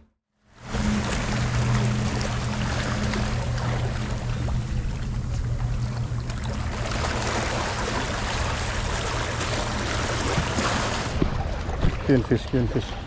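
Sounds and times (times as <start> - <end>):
wind: 0.0 - 13.0
low engine hum: 0.4 - 13.0
water rushing: 0.5 - 13.0.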